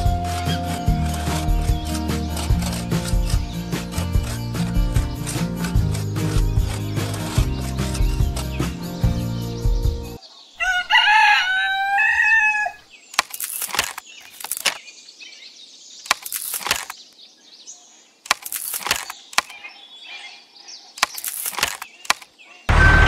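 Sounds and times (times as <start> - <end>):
rooster crowing: 10.6 - 12.9, 22.7 - 23.0.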